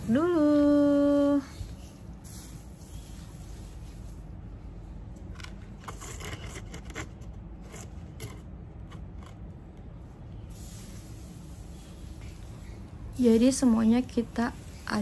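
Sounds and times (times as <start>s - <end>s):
potting mix rustling on floor: 10.5s - 15.0s.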